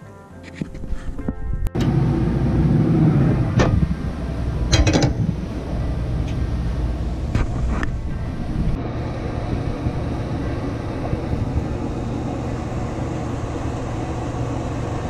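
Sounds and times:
steady low rumble: 1.3 - 15.0
metal grill lid clanking: 4.7 - 5.3.

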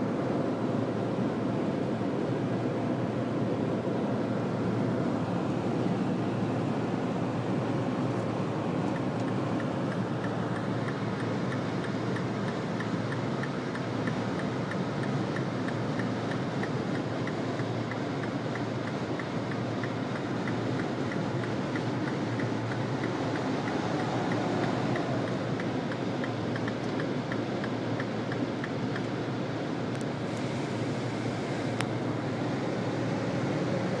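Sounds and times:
engine and tyre rumble: 0.0 - 34.0
regular light ticking: 9.6 - 29.1.

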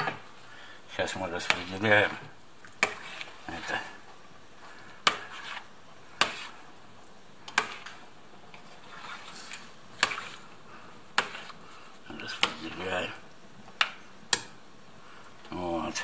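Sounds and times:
soft stirring in pot: 0.0 - 16.0.

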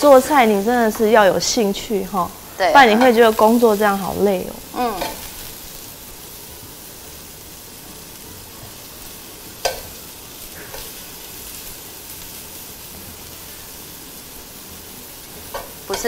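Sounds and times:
mushrooms sizzling in a wok: 0.0 - 16.0
metal tongs clicking on pan: 2.8 - 3.4, 5.0 - 5.4, 9.6 - 10.0, 10.7 - 11.0, 15.5 - 16.0.

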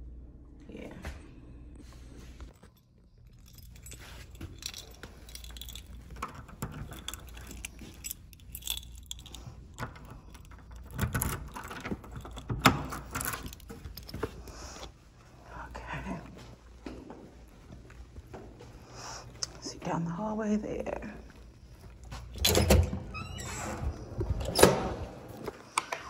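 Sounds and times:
keys jangling: 2.6 - 14.8, 21.3 - 23.5
door lever handle and opening: 4.6 - 14.0, 22.4 - 25.2.

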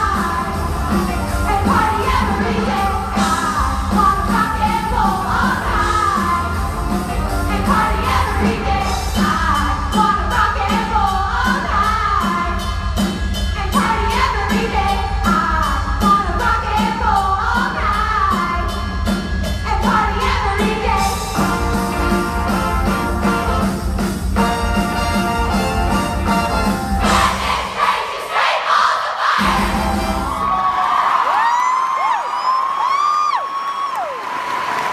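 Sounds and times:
rock and roll backing music: 0.0 - 28.6, 29.2 - 31.0
women's chorus singing: 1.5 - 6.6, 7.5 - 12.1, 27.0 - 30.4.

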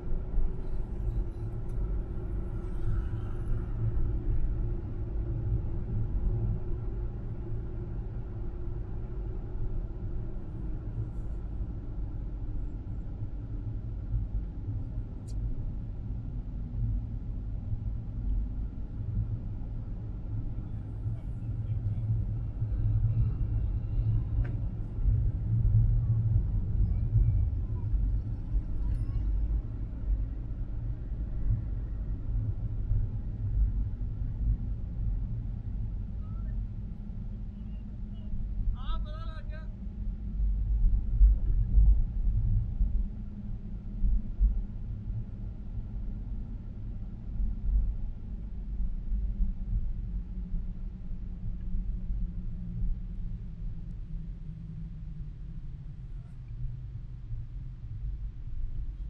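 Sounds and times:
car engine and tyre rumble: 0.0 - 38.8, 39.6 - 59.0.

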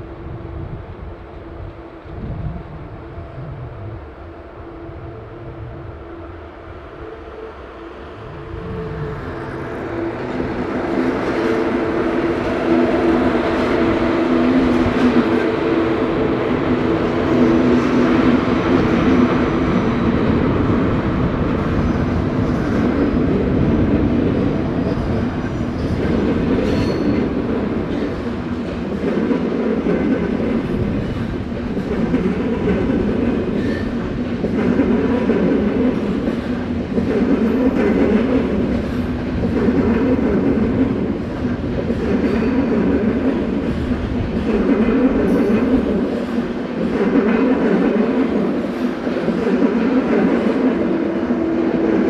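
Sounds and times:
train running rumble: 0.0 - 52.0.

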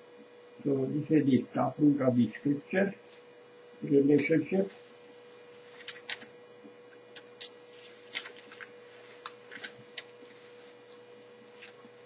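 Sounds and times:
steady hum: 0.0 - 12.0
paper pages rustling: 5.4 - 12.0.

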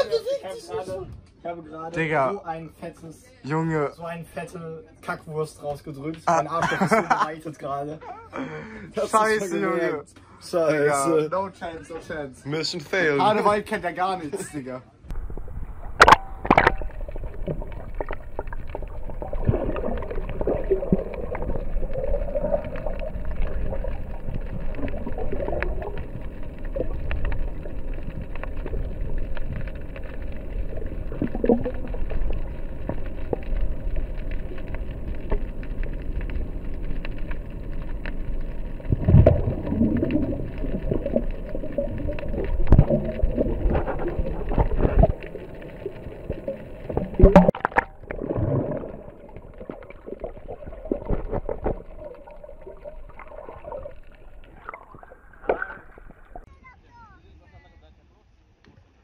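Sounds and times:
swirling water underwater: 15.1 - 56.5
underwater clicks and crackles: 15.1 - 56.5.

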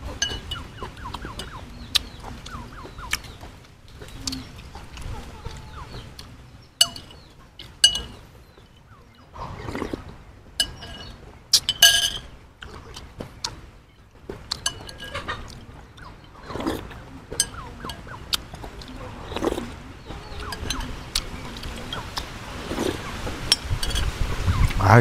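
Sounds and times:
spoon clinking on ceramic bowl: 0.2 - 1.6, 6.8 - 8.2, 10.6 - 12.4, 14.6 - 15.6, 17.3 - 18.2, 20.3 - 22.2, 23.5 - 24.1
slurping: 9.4 - 11.9, 14.4 - 24.8.

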